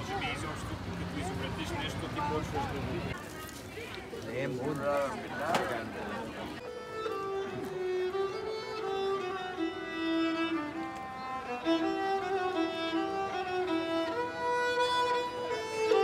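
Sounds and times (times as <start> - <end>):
bowed string instrument melody: 0.0 - 3.2, 6.5 - 16.0.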